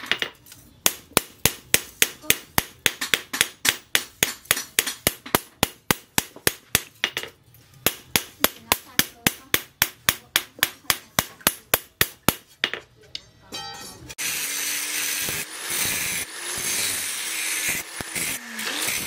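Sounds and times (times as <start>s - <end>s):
hammer striking metal blade on anvil: 13.1s - 14.2s.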